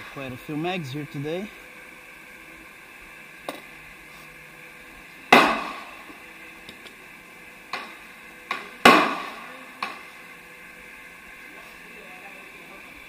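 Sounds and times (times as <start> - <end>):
loud sharp bangs: 5.3 - 6.0, 8.5 - 9.5.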